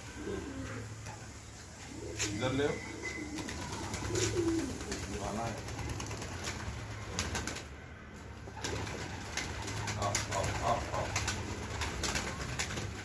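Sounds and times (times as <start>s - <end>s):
pigeons cooing: 0.0s - 7.4s, 8.4s - 13.0s
wings flapping: 3.2s - 13.0s.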